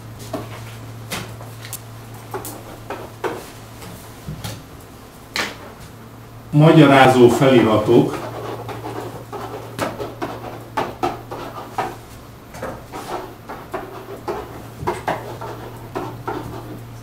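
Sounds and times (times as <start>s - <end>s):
pen tapping and scratching on whiteboard: 8.1s - 12.0s, 12.6s - 16.8s.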